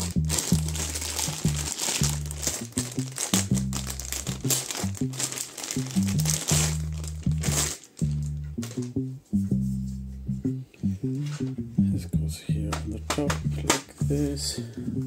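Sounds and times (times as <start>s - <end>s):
plastic bag crinkling: 0.0s - 8.9s
background music with bass: 0.0s - 15.0s.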